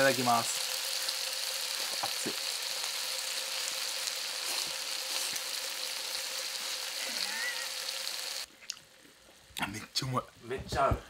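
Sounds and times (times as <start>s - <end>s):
meat sizzling in a pan: 0.0s - 9.5s.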